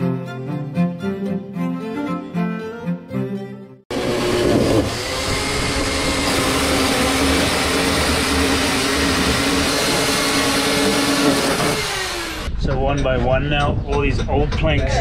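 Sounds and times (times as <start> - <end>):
chainsaw cutting wood: 3.9 - 12.5.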